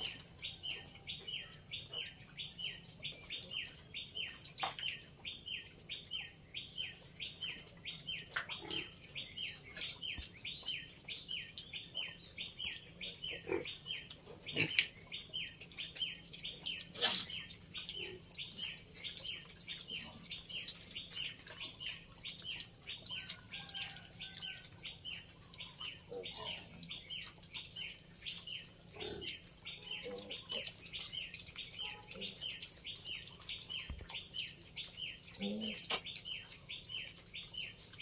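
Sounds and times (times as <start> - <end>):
piglets grunting: 13.2 - 15.0, 16.9 - 18.3, 28.9 - 30.8, 35.3 - 36.1.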